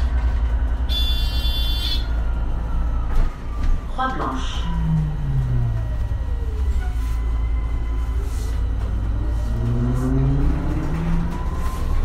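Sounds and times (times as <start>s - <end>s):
bus drive whine: 0.0s - 12.0s
low rumble: 0.0s - 12.0s.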